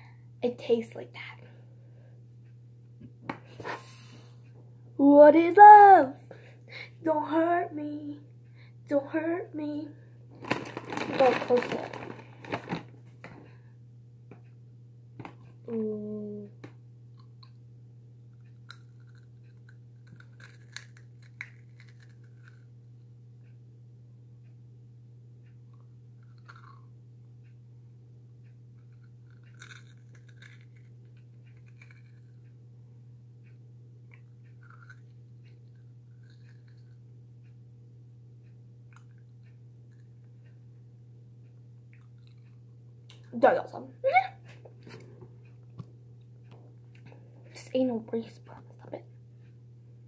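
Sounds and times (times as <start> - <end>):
steady low hum: 0.0 - 50.0
person chewing dry cereal: 10.3 - 13.0, 18.3 - 22.8, 25.7 - 26.9, 28.8 - 32.5, 34.1 - 37.1, 38.9 - 40.3, 41.9 - 43.3
cookie crunching: 10.4 - 13.0, 18.3 - 22.7, 25.7 - 26.9, 28.8 - 32.4, 34.1 - 37.0.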